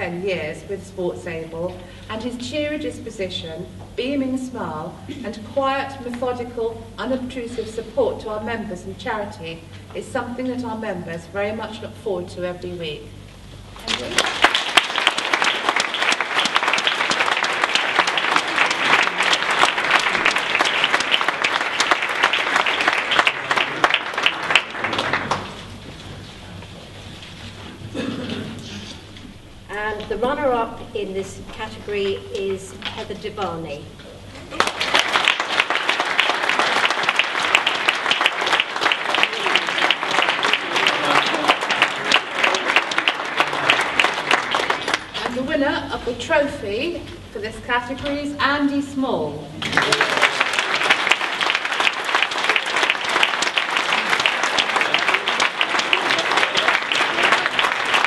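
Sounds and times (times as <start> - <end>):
audience applauding: 13.9 - 25.9, 34.4 - 45.4, 49.6 - 58.0.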